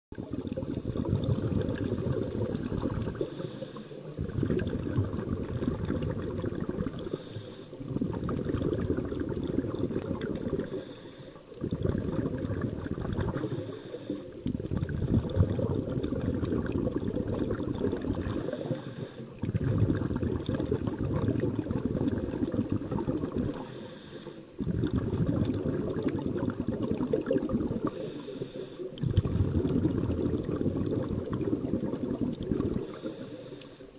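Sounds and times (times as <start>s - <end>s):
exhaled bubbles rumbling underwater: 0.1s - 33.9s
regulator hiss: 7.0s - 7.8s, 13.4s - 14.4s, 23.6s - 24.5s.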